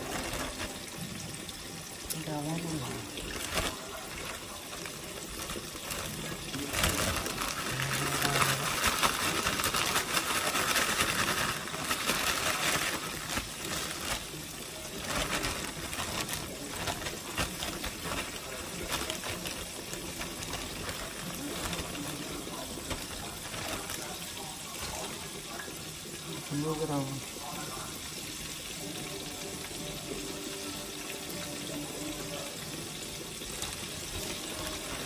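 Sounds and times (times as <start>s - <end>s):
plastic bag rustling: 0.0s - 1.4s, 2.1s - 25.4s, 33.3s - 35.0s
fish fillets sizzling in hot oil: 0.0s - 35.0s.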